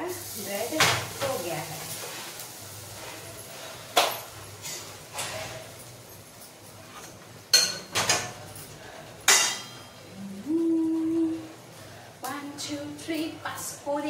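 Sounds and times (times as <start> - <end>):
metal plates and utensils clinking: 3.4 - 10.0.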